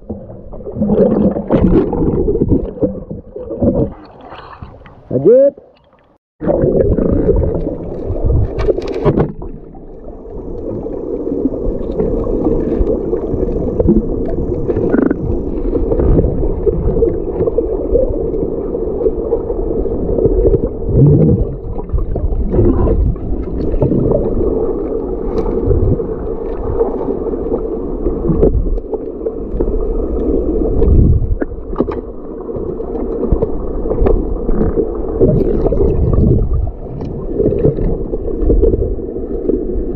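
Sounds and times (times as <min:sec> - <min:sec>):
underwater low rumble: 0:00.0 - 0:05.2, 0:05.8 - 0:39.9
underwater clicks and knocks: 0:07.0 - 0:09.6.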